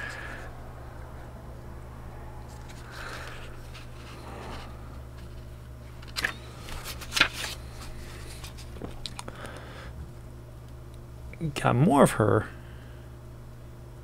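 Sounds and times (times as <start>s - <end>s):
low electrical hum: 0.0s - 14.0s
booklet pages rustling: 2.5s - 9.2s.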